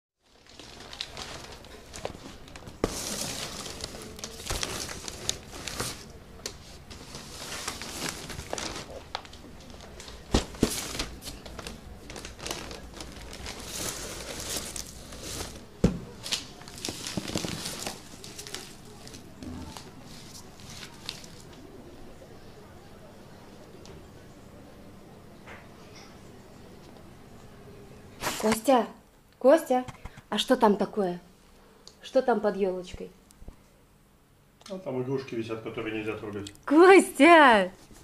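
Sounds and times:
crinkling and rustling: 0.2 - 21.7.

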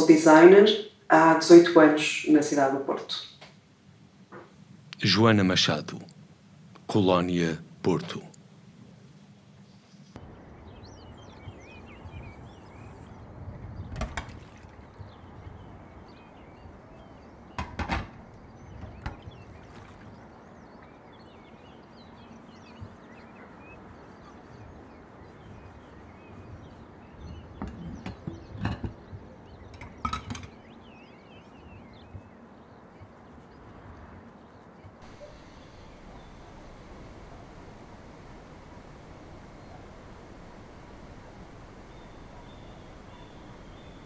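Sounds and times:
small birds twittering: 9.6 - 14.0, 14.9 - 33.6, 34.4 - 44.0
low background hum: 35.0 - 44.0.

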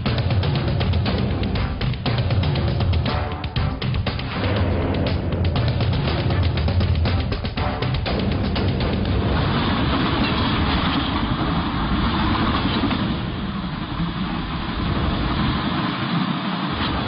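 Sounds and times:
high-speed train rushing past: 4.1 - 17.0.

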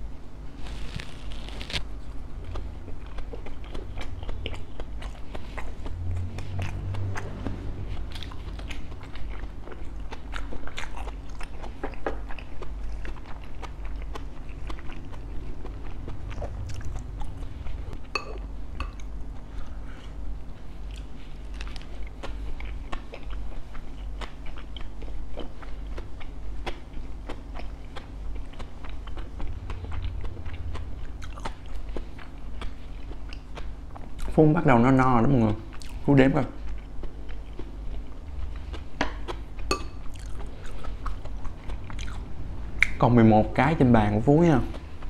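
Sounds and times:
person chewing crispy food: 0.4 - 34.6, 35.2 - 43.0.

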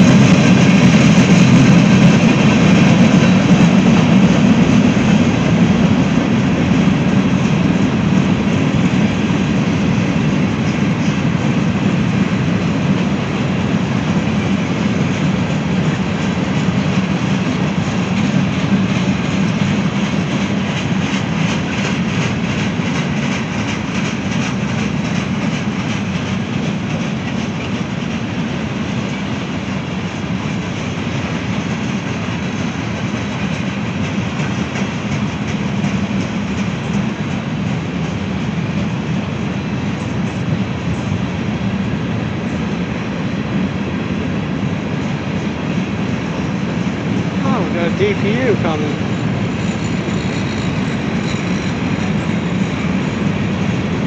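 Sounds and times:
wheels clicking over rail joints: 0.0 - 41.2
steel wheels rumbling on rail: 0.0 - 54.0.

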